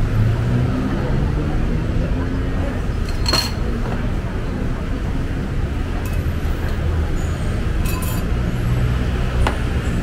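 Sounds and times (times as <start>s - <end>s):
rumble of passing traffic: 0.0s - 10.0s
sharp clink: 7.8s - 8.3s.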